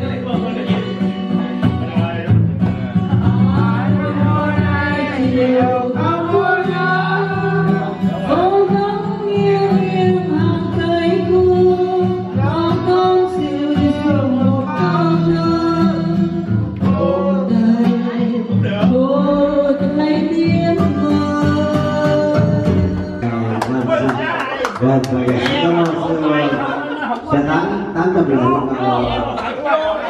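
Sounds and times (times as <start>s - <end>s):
acoustic guitar: 0.0s - 30.0s
woman singing into microphone: 3.1s - 23.4s.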